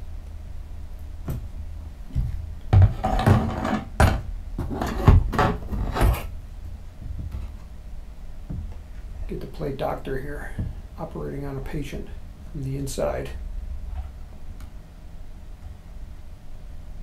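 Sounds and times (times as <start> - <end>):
low hum: 0.0 - 17.0
cardboard parts knocking and scraping: 2.2 - 6.3.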